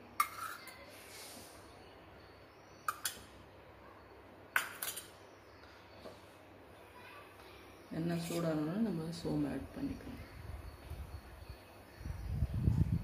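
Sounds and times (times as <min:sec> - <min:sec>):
faint hiss: 0:00.8 - 0:01.8.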